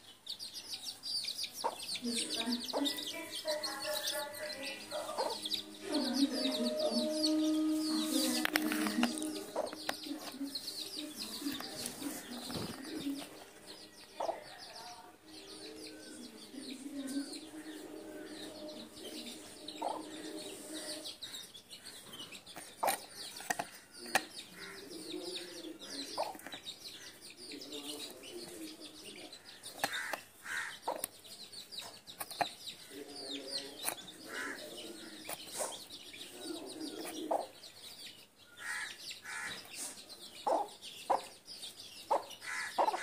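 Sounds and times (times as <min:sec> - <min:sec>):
chicks cheeping: 0:00.0 - 0:43.0
hen clucking: 0:01.5 - 0:13.4, 0:16.6 - 0:21.5, 0:22.8 - 0:27.2, 0:29.6 - 0:31.1, 0:31.8 - 0:37.6, 0:38.6 - 0:41.4, 0:42.1 - 0:43.0.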